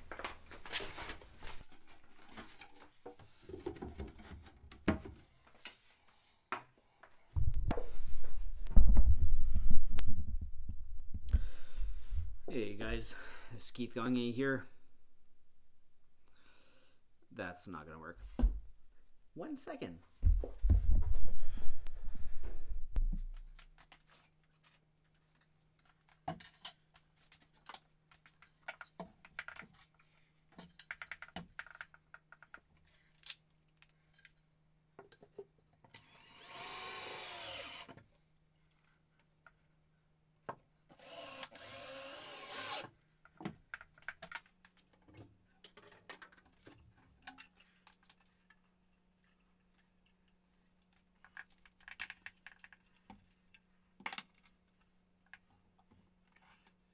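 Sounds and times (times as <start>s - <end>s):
cordless drill running: 36.0s - 37.9s, 40.9s - 42.9s.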